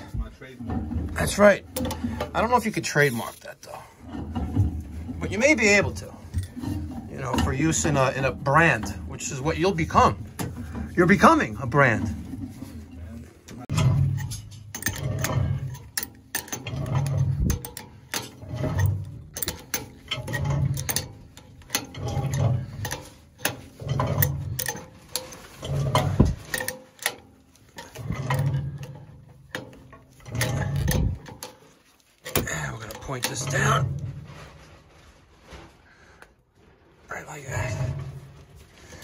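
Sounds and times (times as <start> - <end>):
metal clicks and scrapes: 0.0 - 35.7, 37.2 - 39.0
wrench tightening valve: 13.7 - 33.6.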